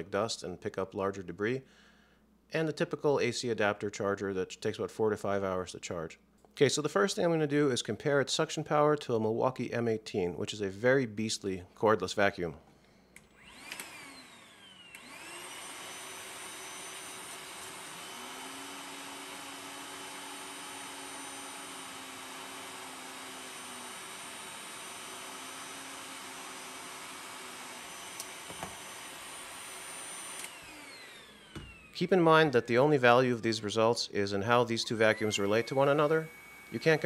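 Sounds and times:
cordless vacuum whining: 13.2s - 37.0s.

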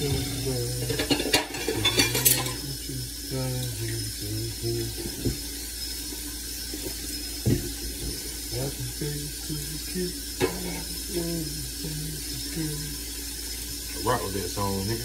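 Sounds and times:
man humming slow tune: 0.0s - 1.0s, 2.7s - 5.2s, 8.6s - 10.2s, 10.8s - 13.0s.

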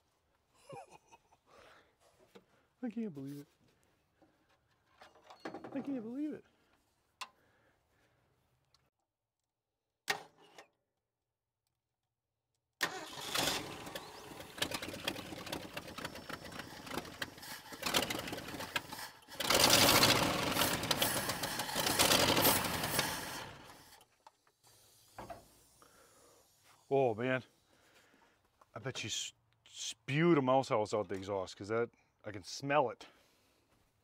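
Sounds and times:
truck engine starting and running: 12.8s - 24.0s.

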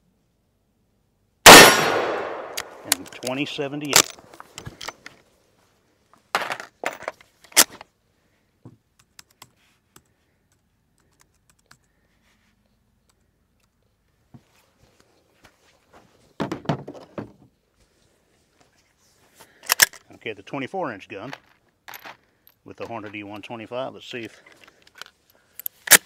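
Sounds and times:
metallic clicks and rattles of gear: 2.6s - 5.2s, 19.6s - 20.1s.

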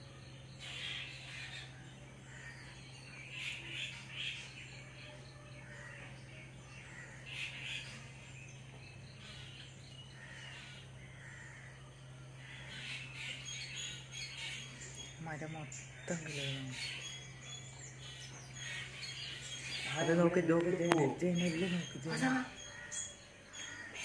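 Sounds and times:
crows cawing: 2.3s - 4.3s, 5.6s - 6.1s, 6.8s - 8.0s, 9.2s - 13.6s, 21.8s - 24.0s.

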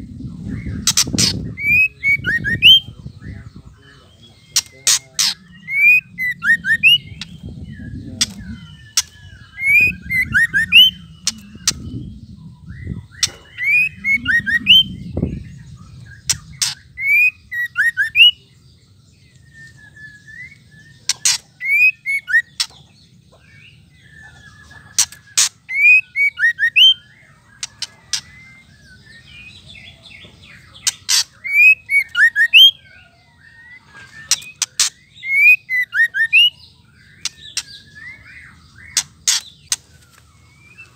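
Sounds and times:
bird calling with clicks and whistles: 12.9s - 15.0s, 19.3s - 22.8s, 24.2s - 29.6s, 30.8s - 33.0s, 33.6s - 40.9s.

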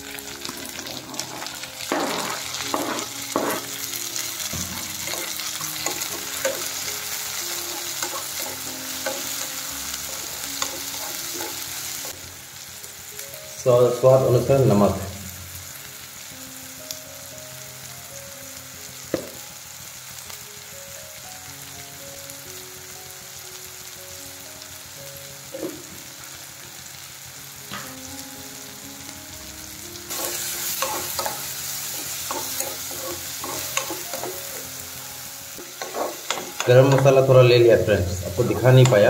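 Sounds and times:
vegetables sizzling in hot oil: 0.0s - 39.0s
spatula scraping a pan: 0.5s - 3.9s, 4.5s - 11.8s, 30.1s - 34.6s, 35.6s - 37.1s.

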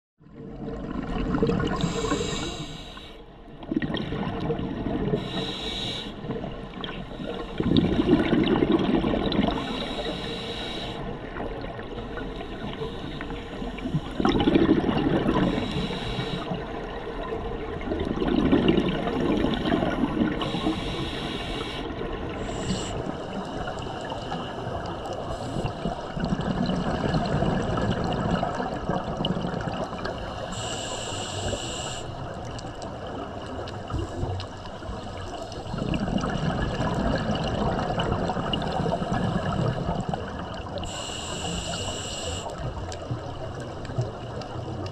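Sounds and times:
hissing regulator inhalations: 1.7s - 3.3s, 5.2s - 6.3s, 9.5s - 11.2s, 12.0s - 14.3s, 15.3s - 16.7s, 20.3s - 26.2s, 30.1s - 32.2s, 40.8s - 42.7s
bubbling exhaust: 7.2s - 10.4s, 13.8s - 16.6s, 17.9s - 31.8s, 35.4s - 44.9s.

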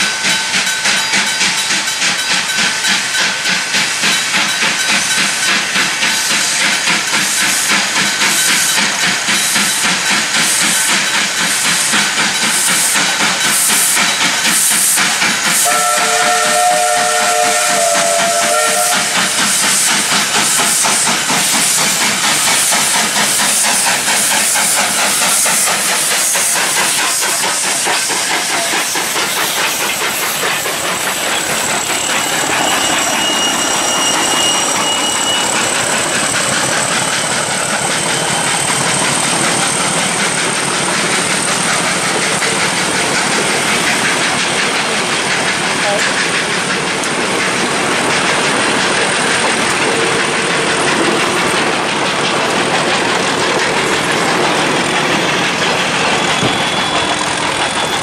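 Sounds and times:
locomotive exhaust beats: 0.0s - 58.0s
steam hissing: 0.0s - 58.0s
wheels squealing on rails: 0.0s - 58.0s
steam whistle blast: 15.6s - 19.4s.

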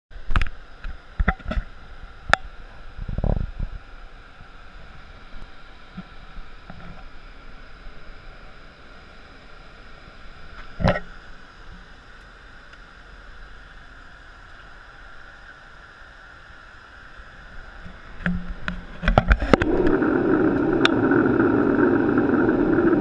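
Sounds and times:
cockpit air rush: 18.9s - 23.0s.

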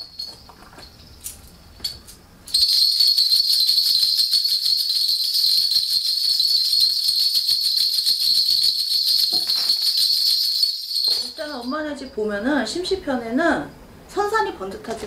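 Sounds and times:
bells jingling rapidly: 0.0s - 1.4s, 2.5s - 12.4s.

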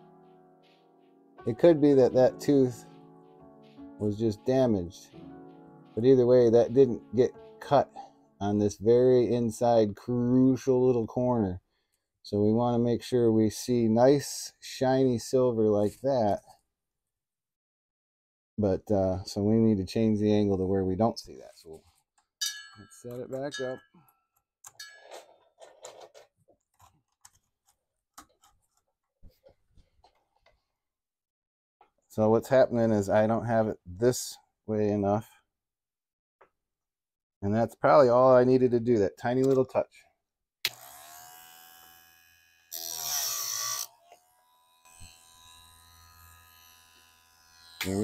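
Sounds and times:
grinder motor humming: 40.7s - 48.0s.

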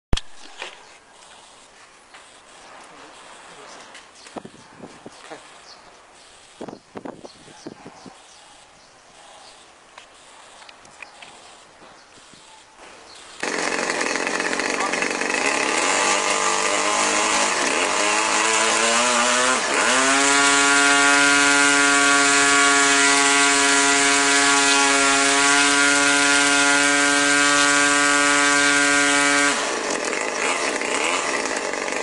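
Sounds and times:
model airplane engine running: 13.4s - 18.3s, 19.0s - 32.0s.

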